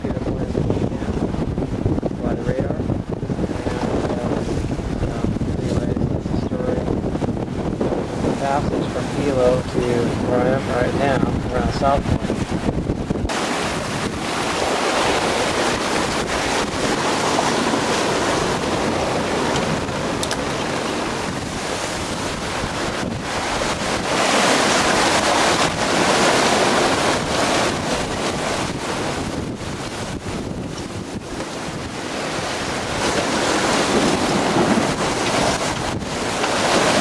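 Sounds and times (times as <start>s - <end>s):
water rushing along hull: 0.0s - 37.0s
wind buffeting microphone: 0.0s - 37.0s.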